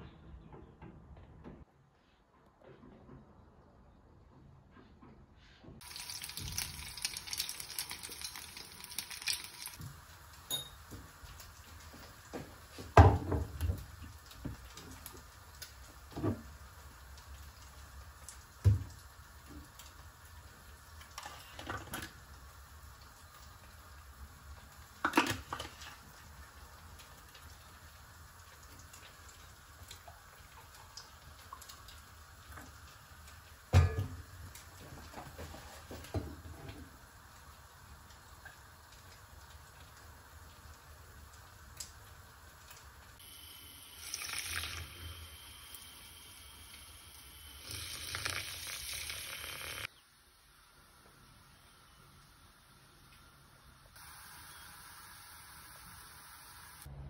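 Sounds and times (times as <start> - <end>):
water running: 5.8 - 49.9
dishes and cookware clattering: 10.5 - 10.9, 33.7 - 34.3.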